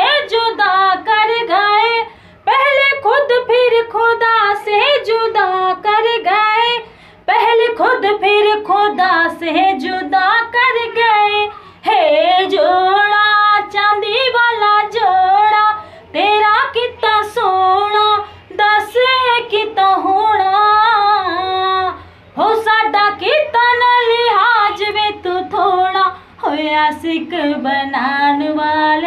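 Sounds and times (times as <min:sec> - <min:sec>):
woman singing: 0:00.0 - 0:29.0.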